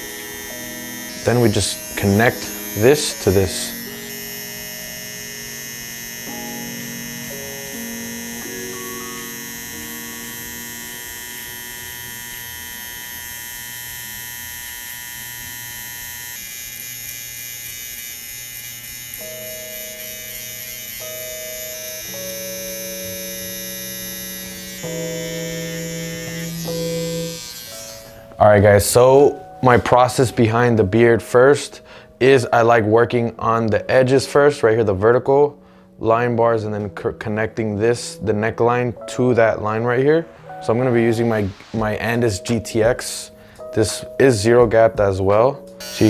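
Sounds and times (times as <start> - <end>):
soft background music: 0.0 - 16.0, 19.2 - 46.0
hair trimmer whining: 0.0 - 28.4, 45.8 - 46.0.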